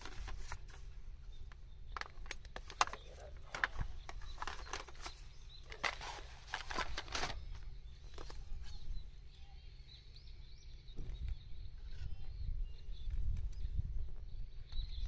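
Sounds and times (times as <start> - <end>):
faint bird chirps: 0.8 - 15.0
small items clicking and clinking: 1.5 - 8.4
wind on microphone: 10.9 - 15.0.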